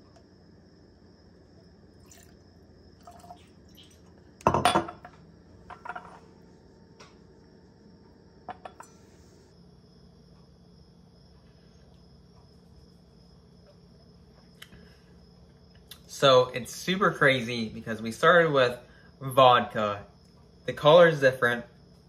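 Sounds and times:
liquid pouring into a glass: 0:01.9 - 0:04.2
glass clinking on stone: 0:04.4 - 0:05.1.

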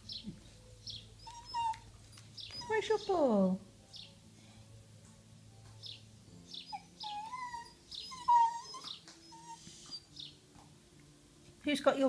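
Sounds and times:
dog whining moans: 0:01.2 - 0:02.9, 0:06.7 - 0:10.2.

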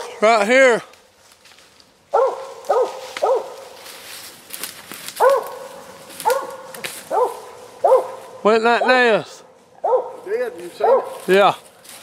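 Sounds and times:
dog barking: 0:02.1 - 0:03.7, 0:05.2 - 0:09.1, 0:09.8 - 0:11.3.

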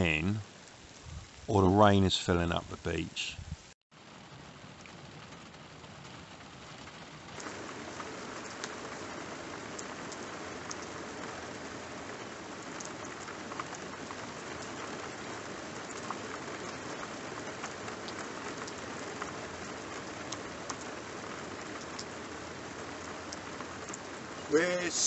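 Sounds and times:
rain on road and grass: 0:00.0 - 0:25.0
single raindrop ticks: 0:06.8 - 0:21.0, 0:21.6 - 0:22.3, 0:22.9 - 0:24.4.

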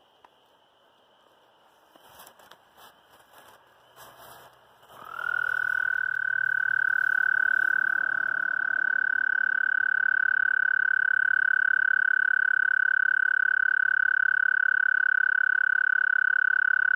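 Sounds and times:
brushing through grass: 0:01.4 - 0:06.1
toad trilling: 0:04.8 - 0:16.9.

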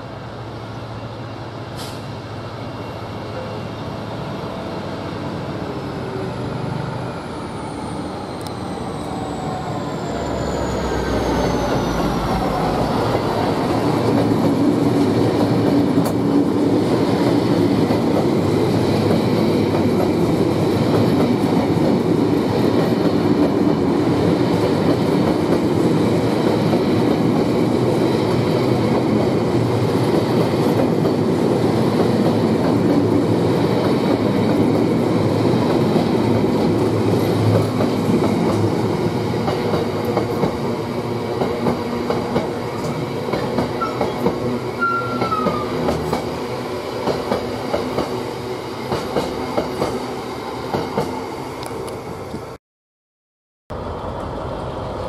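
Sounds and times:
freight train rumbling past: 0:00.0 - 0:52.6, 0:53.7 - 0:55.0.

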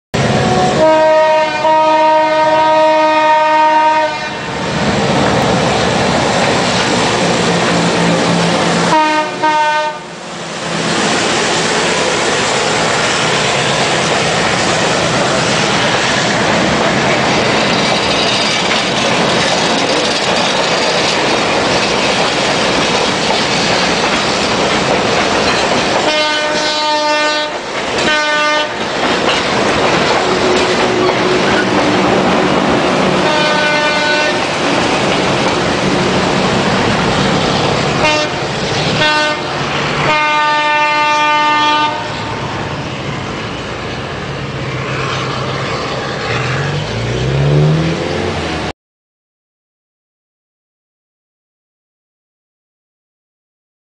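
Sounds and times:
locomotive horn blasts: 0:00.2 - 0:04.6, 0:08.8 - 0:10.2, 0:26.0 - 0:28.8, 0:33.2 - 0:34.6, 0:38.0 - 0:38.4, 0:39.0 - 0:42.4
train cars rolling on track: 0:00.2 - 0:48.7.

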